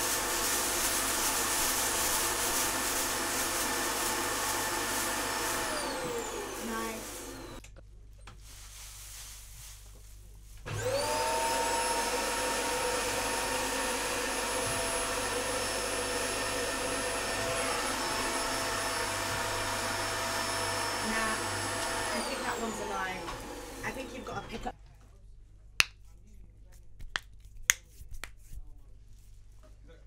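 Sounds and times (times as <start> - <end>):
electric motor whine: 4.0 - 7.6, 10.7 - 24.7.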